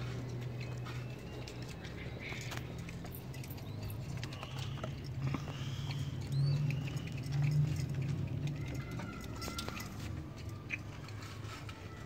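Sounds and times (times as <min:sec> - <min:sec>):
pigeons scratching on floor: 0:00.0 - 0:12.0.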